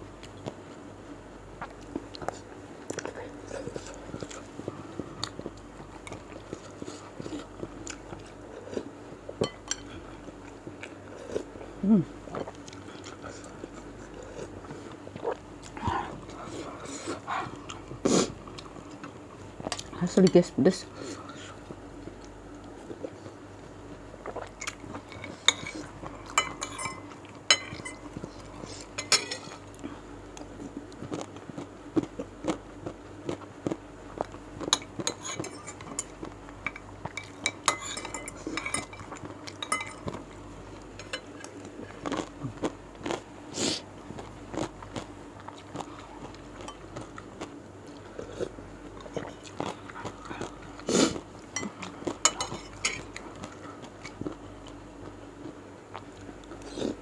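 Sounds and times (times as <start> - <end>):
chewing: 1.6 - 11.6, 12.3 - 20.0, 21.0 - 43.3, 44.0 - 57.0
cutlery clinking on ceramic: 26.4 - 28.0, 29.0 - 29.6, 34.8 - 40.2.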